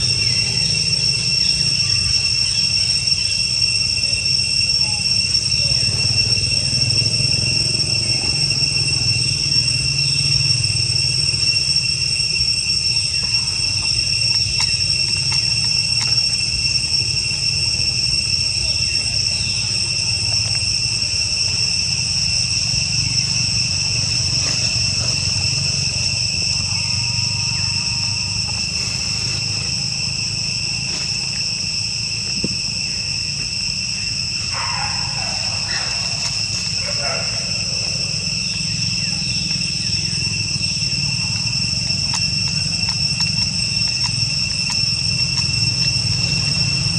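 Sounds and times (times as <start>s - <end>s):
high-pitched insect drone: 0.0s - 46.9s.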